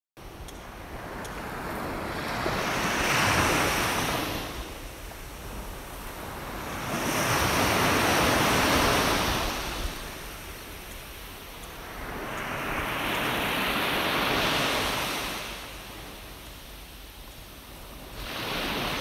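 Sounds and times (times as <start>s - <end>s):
small sea waves breaking: 0.8s - 10.4s, 17.6s - 19.0s.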